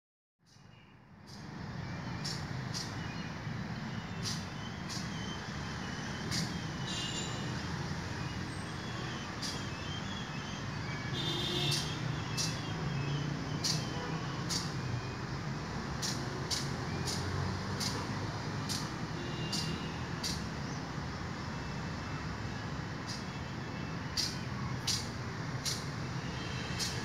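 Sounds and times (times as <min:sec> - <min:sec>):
sharp high-pitched ticks: 0:02.2 - 0:03.0, 0:04.2 - 0:05.1, 0:06.3 - 0:06.6, 0:11.7 - 0:12.6, 0:14.5 - 0:14.8, 0:16.0 - 0:18.0, 0:18.6 - 0:20.5, 0:24.1 - 0:25.9.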